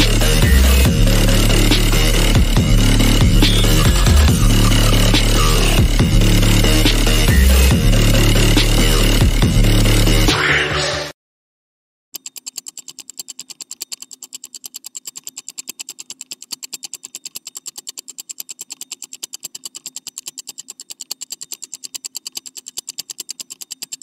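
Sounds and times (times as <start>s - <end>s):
rapid ticking: 0.0s - 10.3s, 12.2s - 24.0s.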